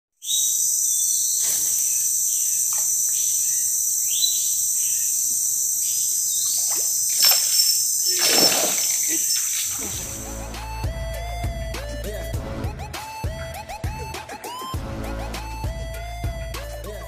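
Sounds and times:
short bird chirps: 0:00.2 - 0:10.2
insects droning chorus: 0:00.2 - 0:12.3.

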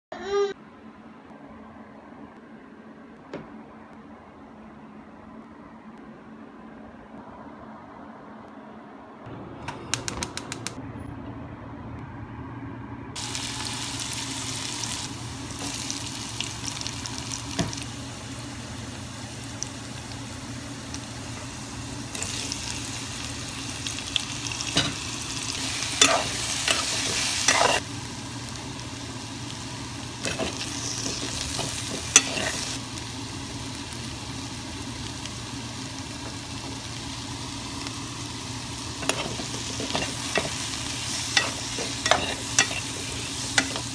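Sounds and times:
vegetables sizzling in oil: 0:13.2 - 0:43.9
spoon scraping metal pan: 0:41.4 - 0:43.8.

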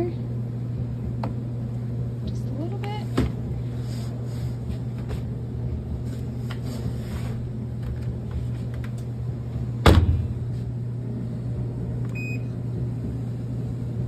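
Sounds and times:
steady low hum: 0:00.0 - 0:14.0
washer lid shutting thump: 0:09.8 - 0:10.3.

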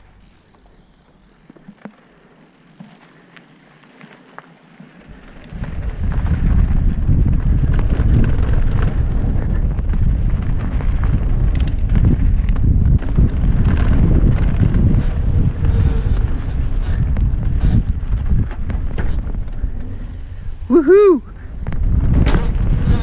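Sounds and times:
bicycle clicks: 0:00.0 - 0:23.0
bike rattles: 0:00.0 - 0:23.0
tyres rumbling over trail: 0:00.0 - 0:23.0
wind noise on microphone: 0:05.1 - 0:23.0.

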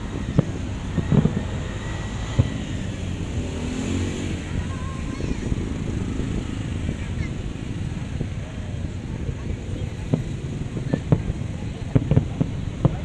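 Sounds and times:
fireworks booming: 0:00.0 - 0:13.0.

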